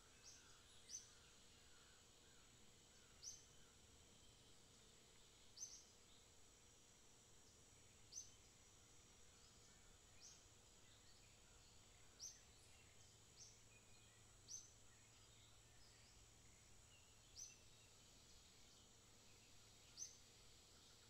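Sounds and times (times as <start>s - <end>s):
faint steady hum: 0.0s - 21.0s
faint high bird chirps: 9.2s - 21.0s.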